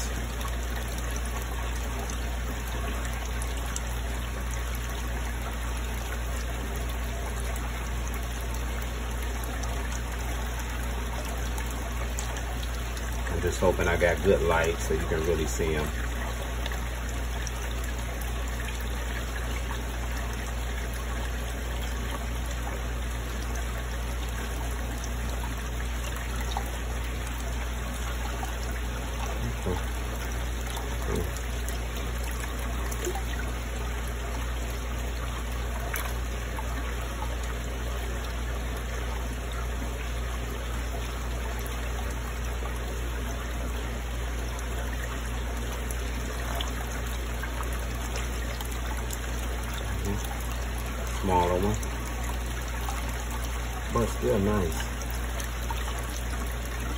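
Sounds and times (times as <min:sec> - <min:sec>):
low steady hum: 0:00.0 - 0:56.9
water trickling: 0:00.0 - 0:56.9.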